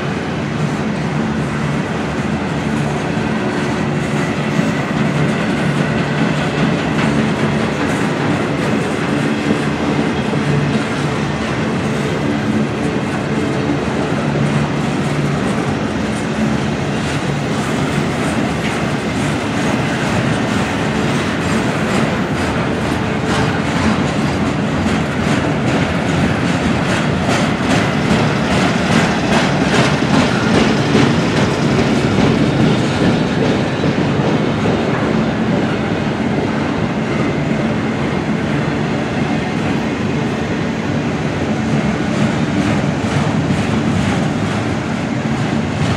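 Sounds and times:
train wheels rumbling: 0:00.0 - 0:45.9
wheels clicking over rail joints: 0:04.1 - 0:35.7.

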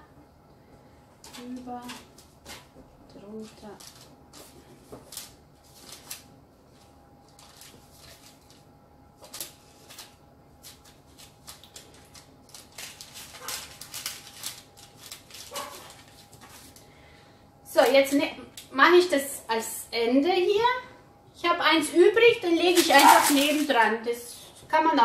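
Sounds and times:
faint steady hum: 0:00.0 - 0:25.0
baking paper crinkling: 0:03.3 - 0:16.9, 0:22.4 - 0:24.0.

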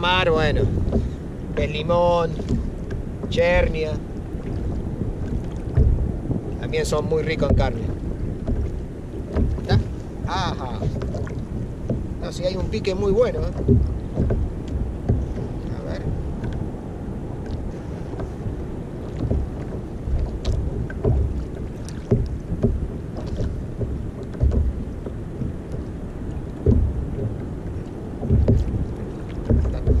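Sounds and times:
waves slapping kayak hull: 0:00.0 - 0:30.0
wind buffeting microphone: 0:00.0 - 0:30.0
faint ticks: 0:13.6 - 0:16.6.

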